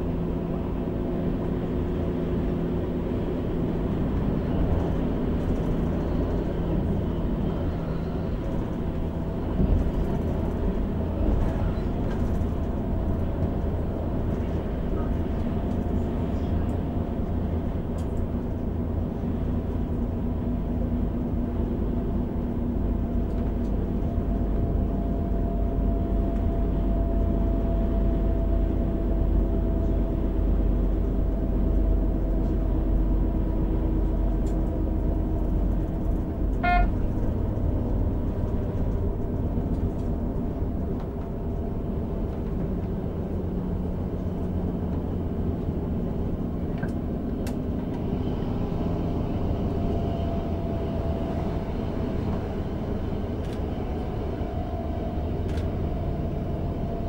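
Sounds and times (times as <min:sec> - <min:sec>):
railcar engine and wheels droning: 0:00.0 - 0:57.0
short high beep: 0:36.6 - 0:36.9.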